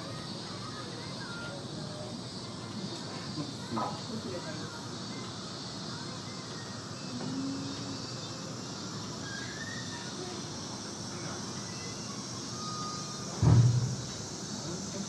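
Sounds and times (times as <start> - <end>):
outdoor background noise: 0.0 - 15.0
loud low thump: 13.4 - 14.0.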